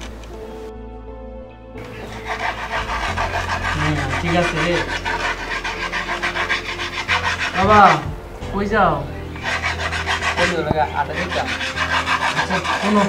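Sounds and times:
rapid rasping strokes: 1.8 - 8.4, 9.3 - 13.0.

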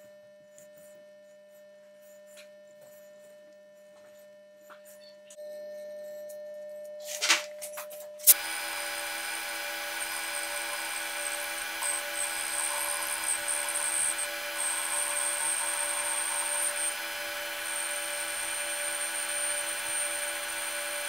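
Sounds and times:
low hum: 8.2 - 21.0
metal lathe whining: 8.2 - 21.0.

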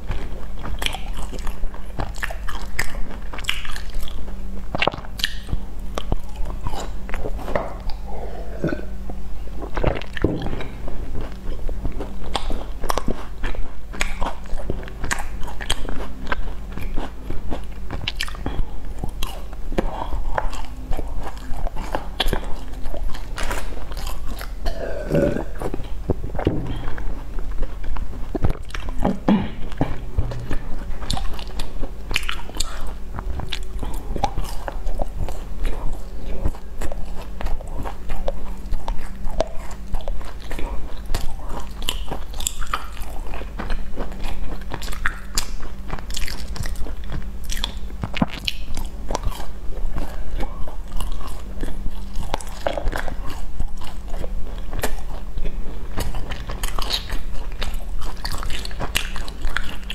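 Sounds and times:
low hum: 0.0 - 44.5
crunchy biting and chewing: 0.0 - 59.9.

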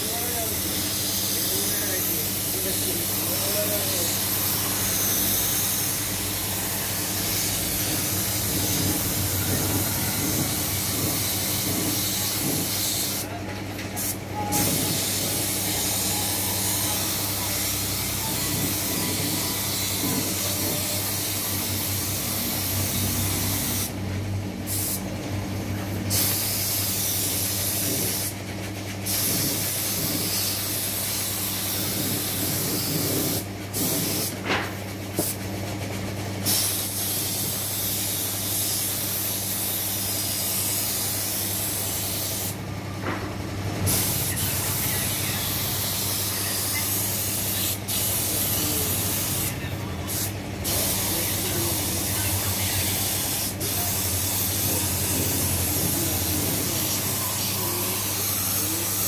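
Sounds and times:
paint spray gun hissing: 24.7 - 25.0, 26.1 - 28.3, 36.4 - 42.6, 43.9 - 49.5.

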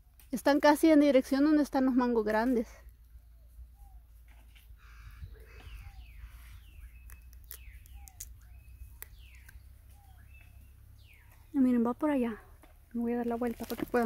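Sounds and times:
soft low chirps: 2.8 - 13.0
birds calling: 3.1 - 12.9.

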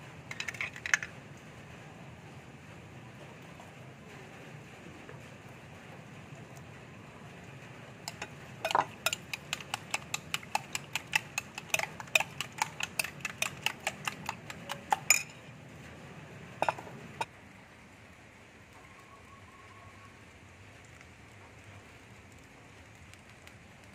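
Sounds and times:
utensil clinking glass bowl: 8.1 - 15.5, 16.6 - 16.9.

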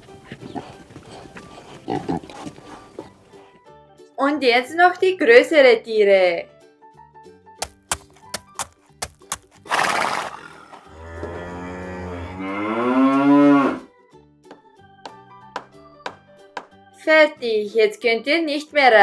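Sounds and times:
soft background music: 0.0 - 9.8, 10.4 - 19.0
cow mooing: 10.3 - 13.9.

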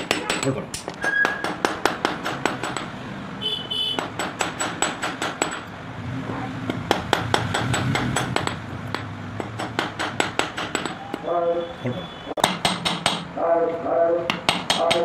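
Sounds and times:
hammer striking metal on steel block: 0.0 - 2.9, 4.0 - 5.7, 6.7 - 11.2, 12.4 - 13.3, 14.3 - 15.0.

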